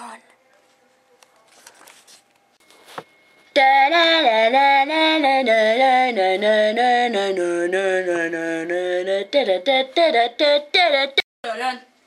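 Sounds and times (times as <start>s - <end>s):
woman singing wordless tune: 3.5s - 11.3s.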